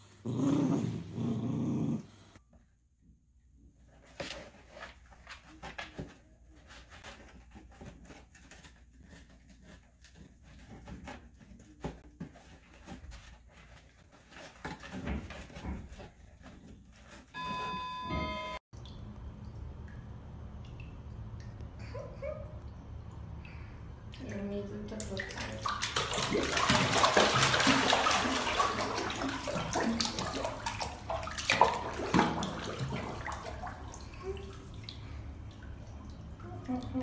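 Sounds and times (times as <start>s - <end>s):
cardboard rustling and scratching: 3.9s - 17.4s
electronic beep tones: 17.4s - 18.6s.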